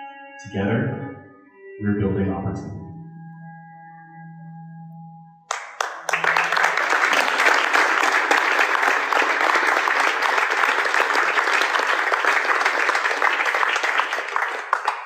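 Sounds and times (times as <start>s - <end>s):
audience applause: 5.5s - 15.0s.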